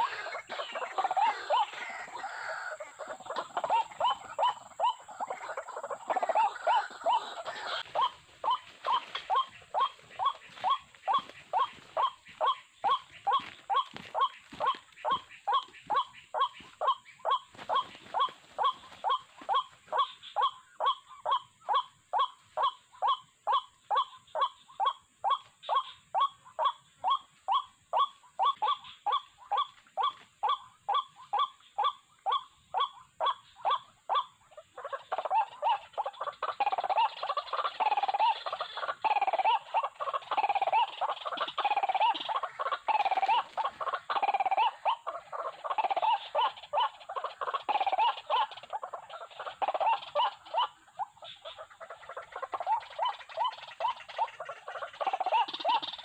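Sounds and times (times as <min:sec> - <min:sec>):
waterhen calling kwak notes: 0:00.0 - 0:56.0.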